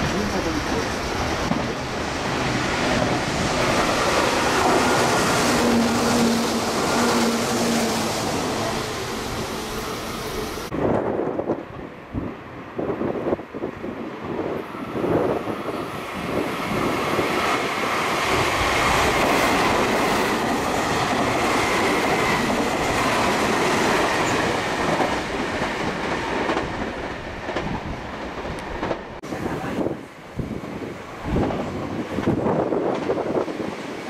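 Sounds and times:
train wheels rushing on rail: 0:00.0 - 0:34.0
clickety-clack over rail joints: 0:16.2 - 0:29.2, 0:31.2 - 0:34.0.

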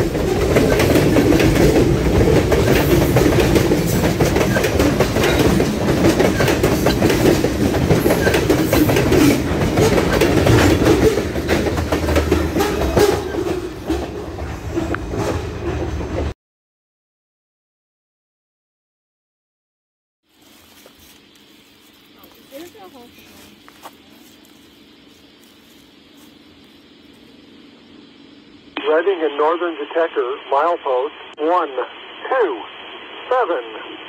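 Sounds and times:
wheels clicking and clanking on rails: 0:00.0 - 0:16.3
freight train rumbling past: 0:00.0 - 0:16.4.

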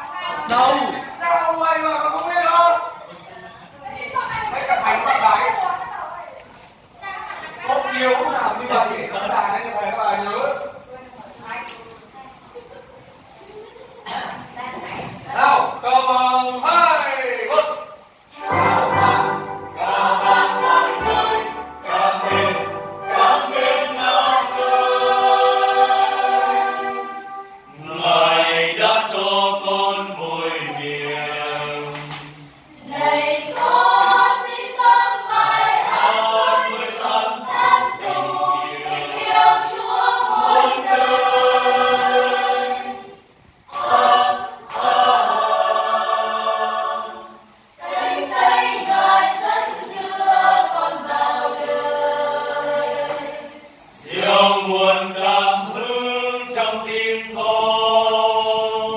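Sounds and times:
choir singing a hymn: 0:18.1 - 0:58.9.

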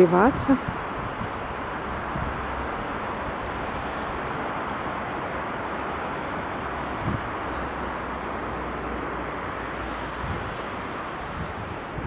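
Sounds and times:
sea wind rushing: 0:00.0 - 0:12.0
wind buffeting microphone: 0:00.0 - 0:12.0.

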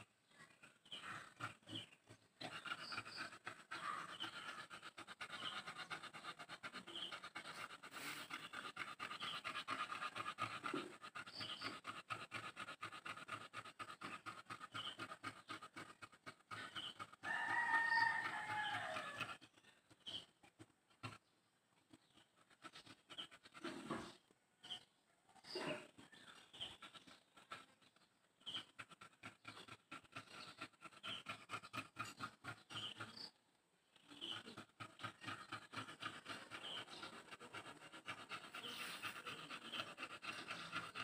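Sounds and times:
rapid animal pulses: 0:00.9 - 0:21.3, 0:21.9 - 0:24.3, 0:25.5 - 0:33.3, 0:34.0 - 0:41.0
drawn-out animal call: 0:02.4 - 0:19.4.

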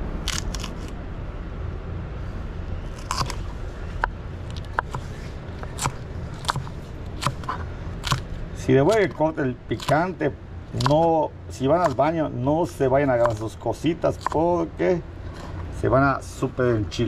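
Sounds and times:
knife slicing chili pepper: 0:03.0 - 0:03.5, 0:04.6 - 0:10.2, 0:10.8 - 0:14.5.

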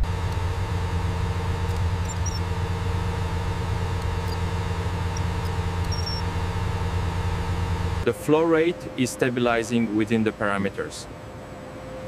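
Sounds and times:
engine running steadily: 0:00.0 - 0:09.0
faint whine: 0:00.0 - 0:12.0
tiny high chirps: 0:01.7 - 0:02.5, 0:04.0 - 0:06.3.

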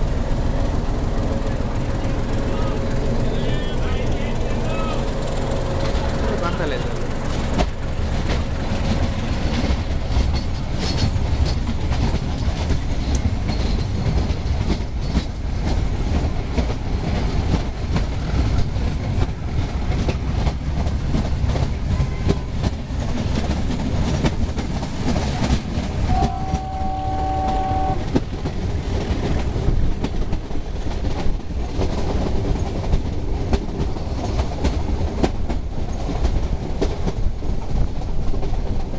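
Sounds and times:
diesel train rumble: 0:00.0 - 0:38.9
wheels clattering over rail joints: 0:00.0 - 0:38.9
multi-tone train horn: 0:26.0 - 0:28.2.

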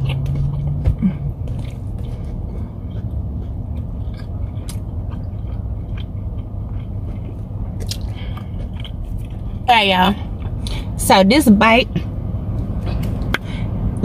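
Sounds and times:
person chewing: 0:00.0 - 0:11.0
low rumble: 0:00.0 - 0:14.0.

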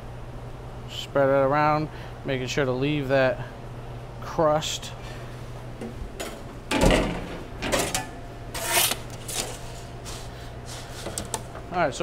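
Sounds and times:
steady low hum: 0:00.0 - 0:12.0
kitchen clatters: 0:06.2 - 0:09.8
scrape: 0:08.6 - 0:11.1.

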